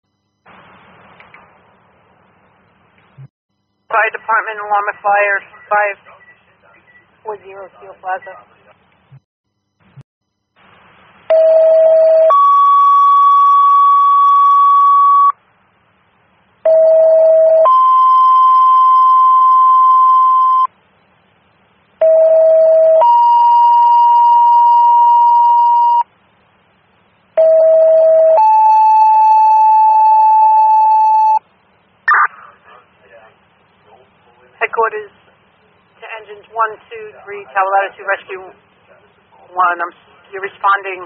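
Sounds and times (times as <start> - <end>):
two-tone radio paging tones: 4.3 - 8.3.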